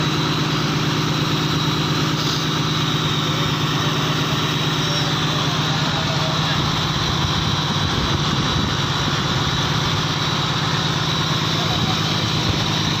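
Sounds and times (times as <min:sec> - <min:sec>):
boat engine running: 0:00.0 - 0:13.0.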